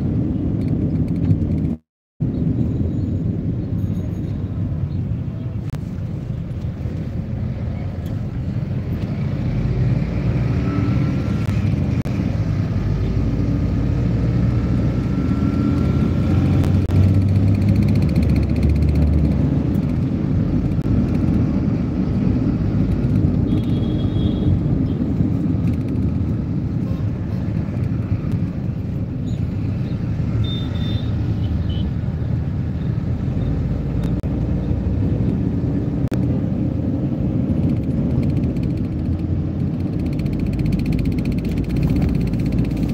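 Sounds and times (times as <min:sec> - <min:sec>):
street traffic rumble: 0:00.0 - 0:42.9
vehicle engine and road noise: 0:00.0 - 0:42.9.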